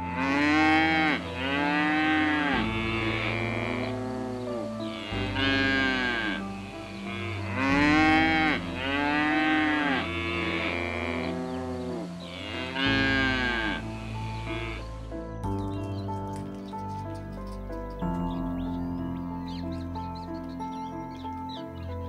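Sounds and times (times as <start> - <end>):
cow mooing: 0.0 - 14.9.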